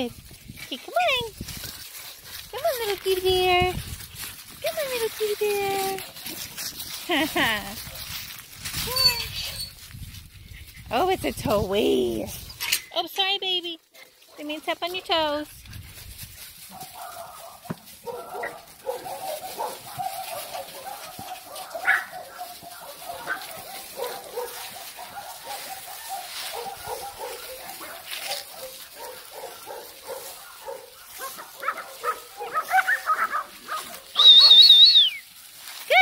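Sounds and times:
puppies yipping and whining: 0:08.8 - 0:09.8, 0:18.2 - 0:35.2.

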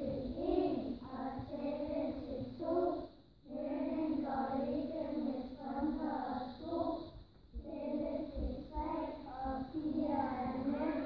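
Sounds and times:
children singing in unison: 0:00.0 - 0:11.0.

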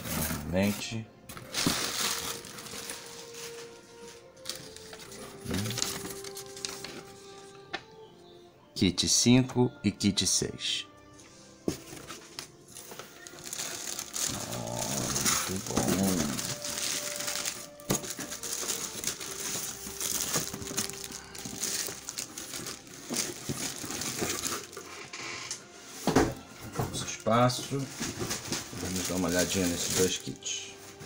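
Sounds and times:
plastic film crinkling: 0:00.0 - 0:07.3, 0:11.8 - 0:26.4, 0:27.0 - 0:31.0.

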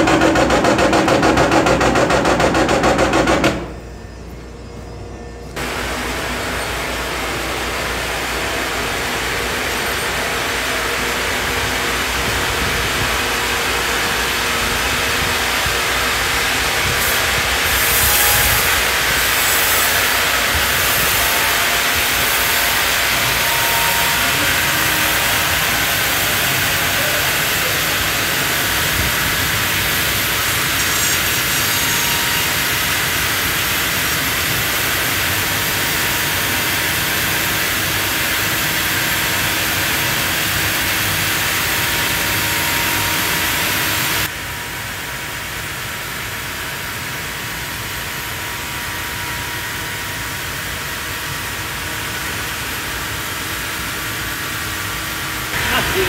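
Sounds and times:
band saw cutting log: 0:00.0 - 0:03.8, 0:17.0 - 0:44.3.

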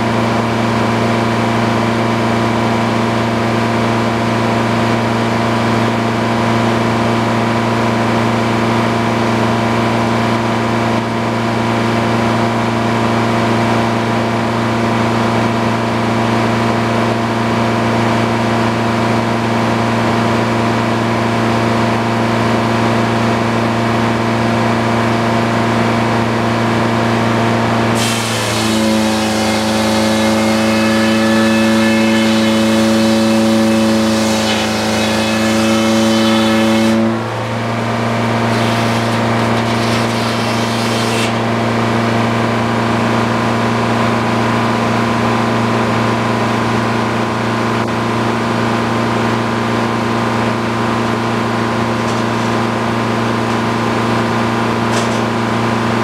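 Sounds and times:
sawmill engine humming: 0:13.2 - 0:56.0
saw blade cutting log whine: 0:26.5 - 0:43.6, 0:49.1 - 0:56.0.

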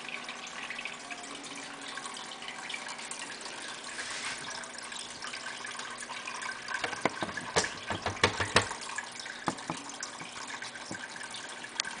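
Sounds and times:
water trickling from pump: 0:00.0 - 0:12.0
sharp clicks and taps: 0:06.8 - 0:08.8.

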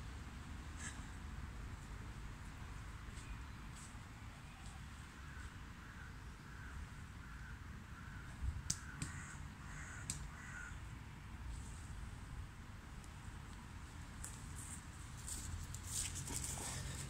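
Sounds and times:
hands tapping tree trunk: 0:08.6 - 0:09.2, 0:10.0 - 0:10.3.

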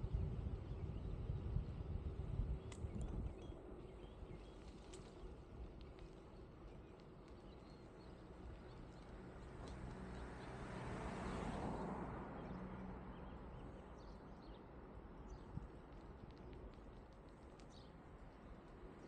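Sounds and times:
bicycle tyre road rumble: 0:00.0 - 0:19.0
faint clicks: 0:02.6 - 0:03.5, 0:04.5 - 0:10.6, 0:15.3 - 0:19.0
car passing: 0:09.2 - 0:14.2.

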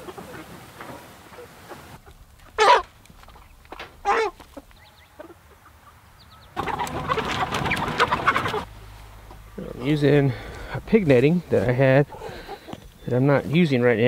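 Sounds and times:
many chickens squawking and clucking: 0:00.0 - 0:14.0
chicken squawks: 0:01.3 - 0:09.8, 0:12.0 - 0:13.0.

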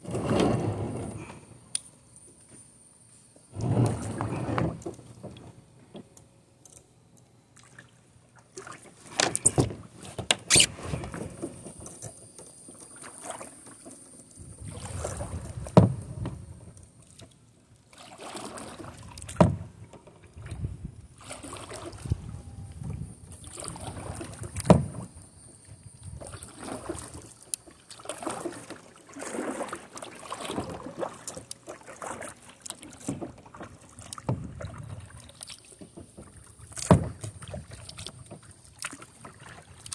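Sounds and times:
paddle splashing in water: 0:07.6 - 0:11.6, 0:14.6 - 0:16.2, 0:17.0 - 0:19.8, 0:21.2 - 0:22.3, 0:23.4 - 0:25.1, 0:26.1 - 0:39.9.

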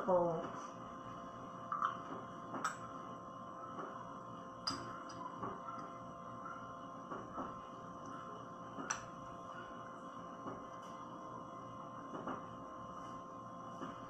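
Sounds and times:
steady electrical hum: 0:00.0 - 0:14.0
metal spoon clinking on glass bowl: 0:04.6 - 0:05.2.

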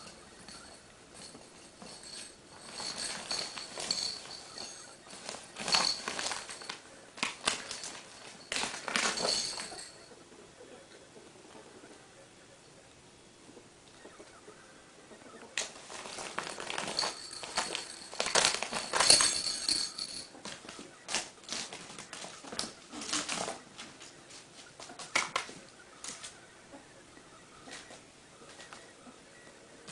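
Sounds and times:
plastic tunnel rustling: 0:00.0 - 0:10.0, 0:15.6 - 0:24.7
claws scrabbling: 0:00.0 - 0:10.1, 0:15.6 - 0:26.4.

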